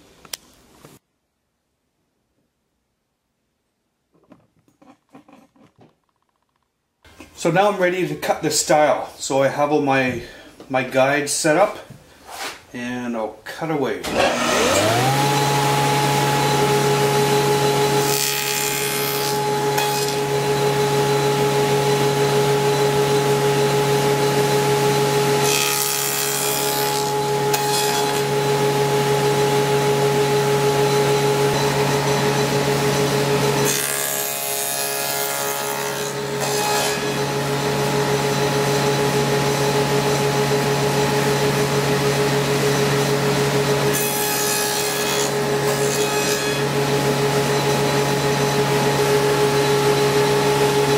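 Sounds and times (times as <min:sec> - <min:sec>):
saw cutting wood: 0:14.0 - 0:50.9
table saw running: 0:14.0 - 0:50.9.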